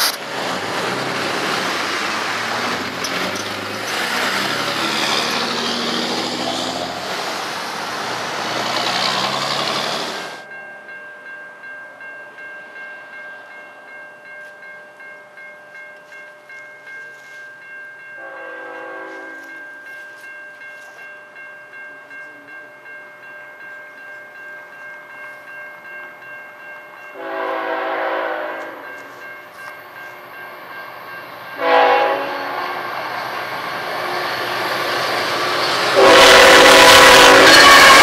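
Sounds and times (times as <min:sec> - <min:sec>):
train rushing and rumbling: 0:00.0 - 0:10.4, 0:27.2 - 0:38.0
level-crossing warning bell ringing: 0:01.0 - 0:38.0
locomotive air horn: 0:18.2 - 0:19.6, 0:27.2 - 0:28.8, 0:31.6 - 0:32.9, 0:35.8 - 0:38.0.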